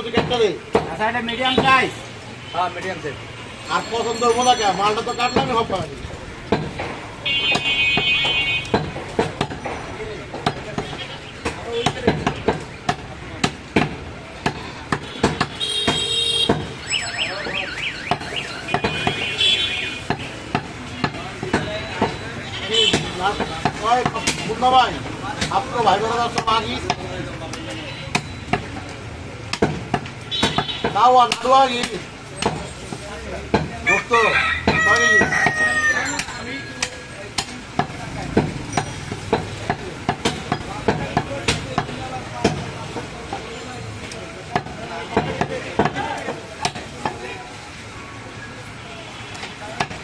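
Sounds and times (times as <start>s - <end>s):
cleaver chopping meat on wood: 0.0s - 1.0s, 6.4s - 16.8s, 18.1s - 19.3s, 20.0s - 22.2s, 22.9s - 24.6s, 25.4s - 27.1s, 28.1s - 33.9s, 34.6s - 43.4s, 44.5s - 47.2s, 49.8s - 50.0s
high warbling tone: 16.8s - 18.8s
steady high tones: 16.8s - 18.8s.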